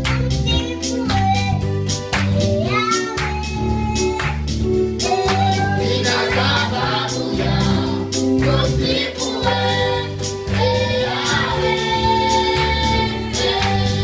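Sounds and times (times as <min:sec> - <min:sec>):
electronic keyboard: 0:00.0 - 0:14.0
women and child singing gospel: 0:05.1 - 0:14.0.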